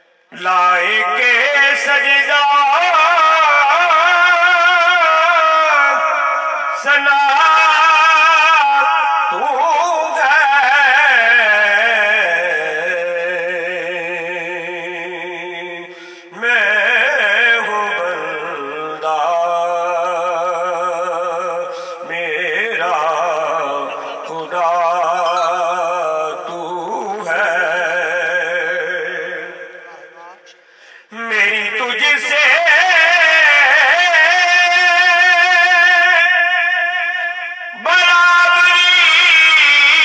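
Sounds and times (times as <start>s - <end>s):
man singing with vibrato: 0.0s - 40.0s
singer breathing: 15.8s - 16.4s, 21.6s - 22.1s, 30.5s - 31.2s.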